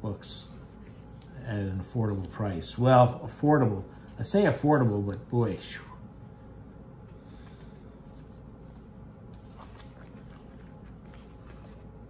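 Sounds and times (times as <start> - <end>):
low steady hum: 0.0 - 12.0
paper page rustling: 7.4 - 11.9.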